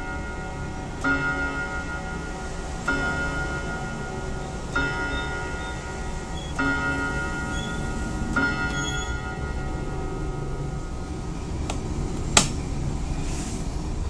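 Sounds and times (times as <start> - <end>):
clock striking gong rod: 0.0 - 11.2.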